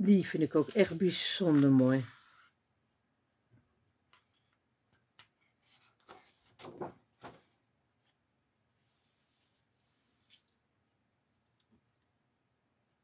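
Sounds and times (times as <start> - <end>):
paper rustling and flapping: 5.7 - 7.6.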